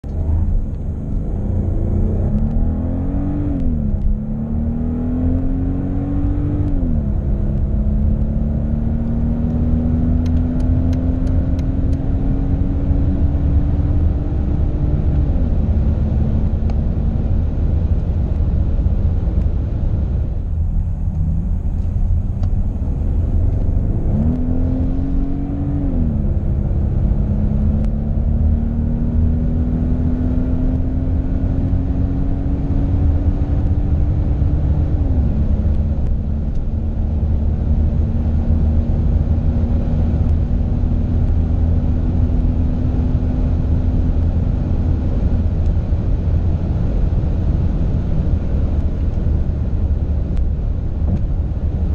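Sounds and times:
car engine accelerating hard: 0.0 - 51.9.

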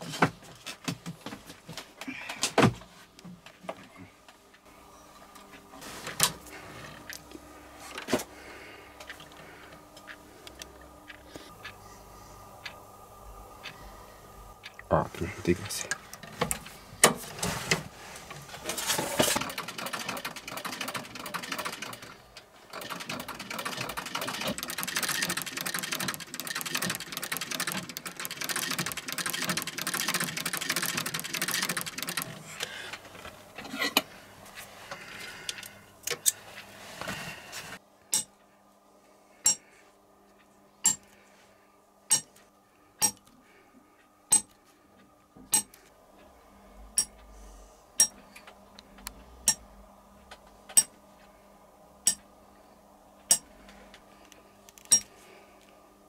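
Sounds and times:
sewing machine running: 19.1 - 32.5
scattered clicks: 22.8 - 32.4.

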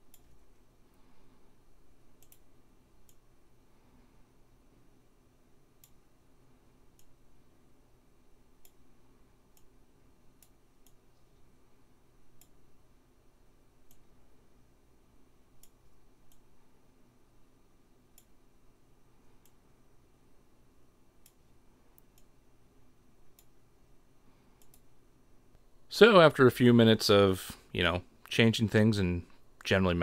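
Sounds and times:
computer mouse clicks: 0.1 - 0.6, 2.2 - 3.2, 5.8 - 6.0, 6.9 - 7.2, 8.6 - 8.8, 9.5 - 9.8, 10.4 - 11.0, 12.4 - 12.6, 15.6 - 16.5, 18.1 - 18.4, 21.2 - 22.3, 23.3 - 23.6, 24.5 - 24.9.

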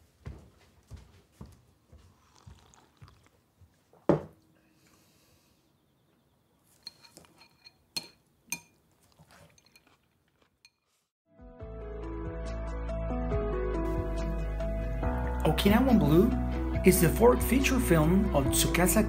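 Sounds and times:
china or glass clinking: 6.8 - 8.8.

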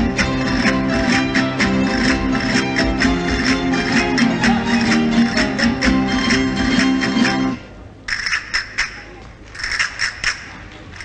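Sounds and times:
strummed guitar: 0.0 - 7.7.

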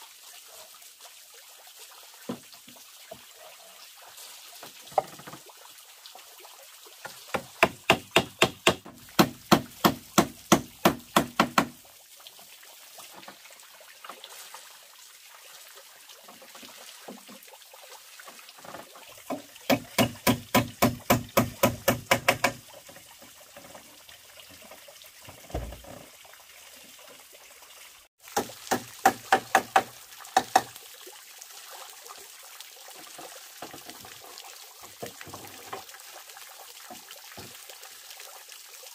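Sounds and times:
water trickling into pond: 0.0 - 38.9
hammer driving nails into wood: 7.4 - 11.8, 19.7 - 22.6, 28.7 - 30.7.

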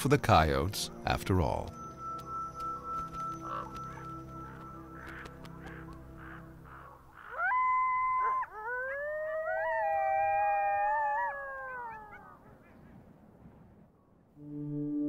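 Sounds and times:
coyotes howling: 3.0 - 12.8.

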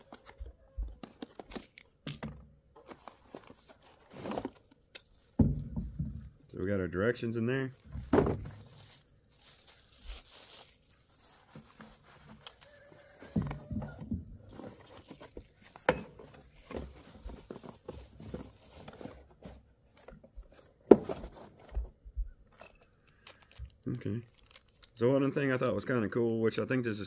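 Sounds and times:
packing crinkling: 0.0 - 2.1, 2.8 - 5.4, 7.4 - 13.3, 14.5 - 20.6, 23.1 - 26.4.

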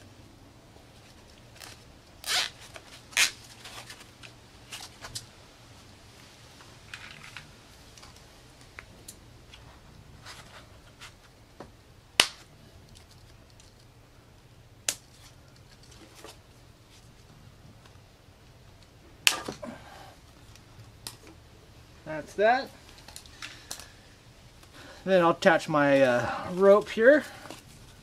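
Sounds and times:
plastic zip ties ticking and rustling: 1.0 - 5.3, 12.8 - 13.9.

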